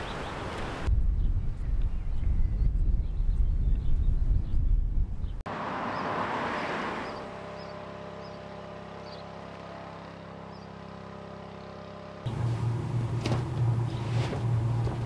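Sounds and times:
engine-like hum: 4.6 - 15.0
lower hum: 9.8 - 15.0.

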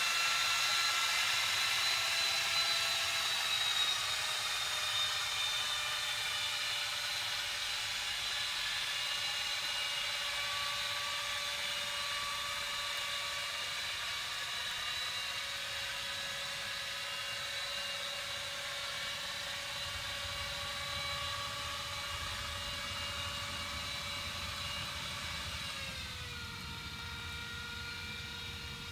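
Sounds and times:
underwater boat engine whine: 19.1 - 28.9.

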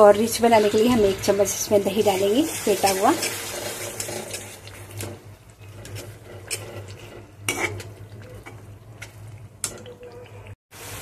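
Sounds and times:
light sizzle: 0.0 - 11.0
spoon scraping metal pot: 2.0 - 10.4.

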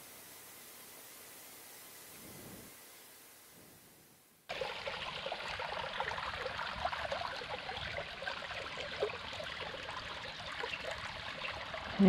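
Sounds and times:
creek babbling over rocks: 4.5 - 12.0.

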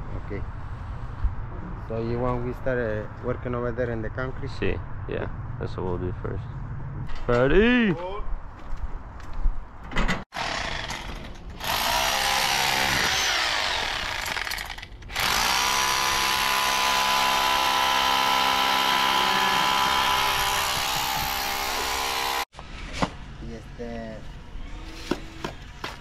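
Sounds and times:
rotary hammer drilling into concrete: 10.4 - 22.5.

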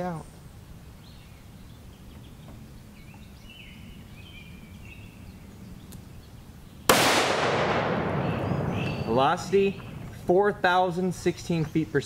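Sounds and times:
faint bird chirps: 0.0 - 6.9, 8.1 - 10.2
low wind rumble: 0.0 - 12.0.

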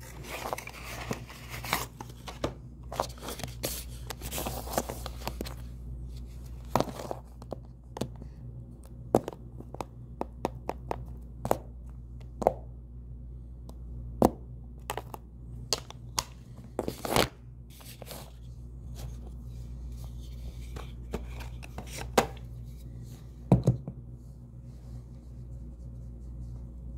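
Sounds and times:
steady low hum: 0.0 - 26.9.

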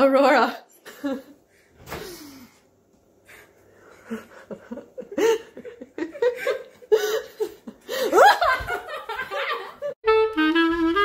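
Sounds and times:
woman laughing: 4.0 - 10.0.

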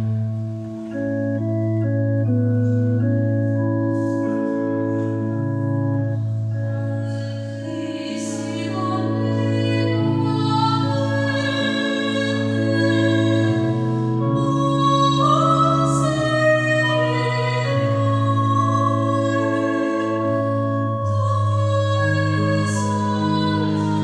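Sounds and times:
organ playing sustained chords: 0.0 - 24.0
soprano singing with vibrato: 6.7 - 24.0.

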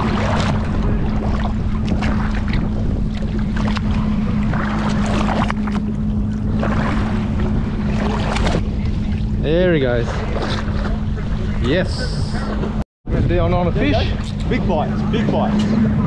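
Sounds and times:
water splashing against boat hull: 0.0 - 12.8
low hum and rumble: 0.0 - 16.0.

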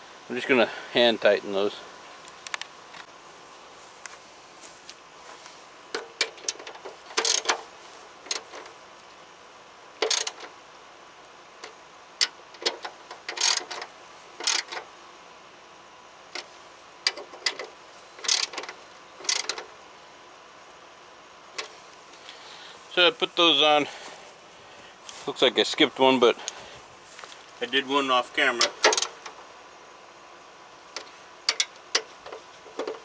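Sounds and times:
hand ratchet clicking: 5.9 - 7.6, 10.0 - 10.5, 12.2 - 14.8, 16.4 - 19.6, 28.6 - 29.3, 31.0 - 33.0.

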